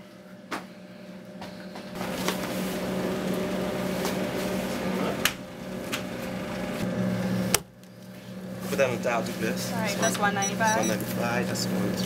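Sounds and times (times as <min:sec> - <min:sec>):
steady hum: 0:09.6 - 0:11.0.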